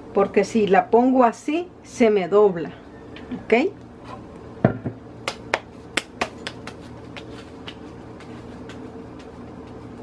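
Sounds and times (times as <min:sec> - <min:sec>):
hands slapping dough: 0:05.2 - 0:10.0.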